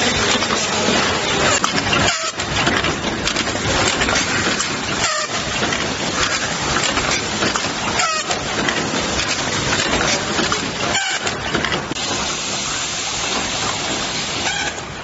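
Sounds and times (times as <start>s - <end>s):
loud hiss-like machine noise: 12.0s - 15.0s.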